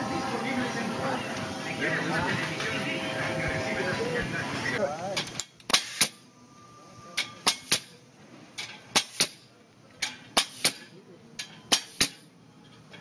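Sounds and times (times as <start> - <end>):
pneumatic tool sharp snaps: 5.2 - 6.2, 7.2 - 8.0, 8.9 - 9.4, 10.0 - 10.9, 11.7 - 12.2.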